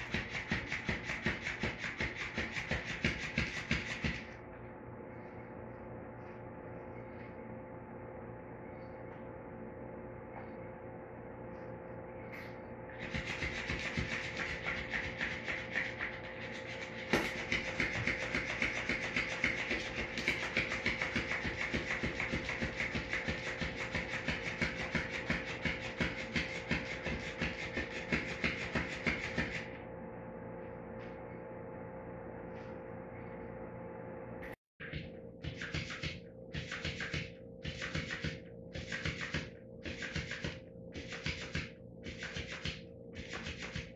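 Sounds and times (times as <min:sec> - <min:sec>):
toy tail flapping on tile floor: 0:00.0 - 0:04.3, 0:13.0 - 0:29.7.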